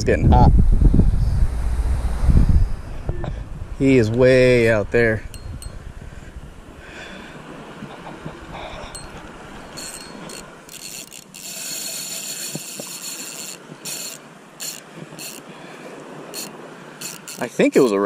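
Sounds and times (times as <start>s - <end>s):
fishing reel drag buzzing: 8.8s - 17.9s.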